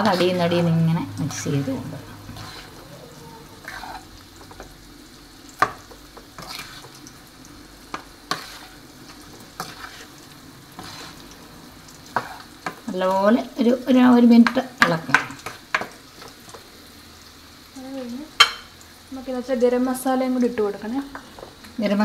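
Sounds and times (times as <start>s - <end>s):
spatula stirring vegetables: 0.0s - 19.1s, 19.7s - 21.8s
frying sizzle: 0.0s - 22.0s
spatula knocking on pan: 5.6s - 6.3s, 18.4s - 18.7s.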